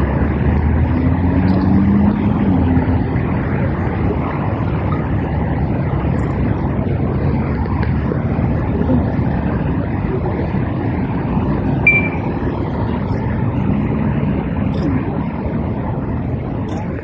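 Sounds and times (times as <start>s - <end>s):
traffic rumble: 0.0s - 17.0s
wind: 0.0s - 17.0s
brief high tone: 11.8s - 12.4s.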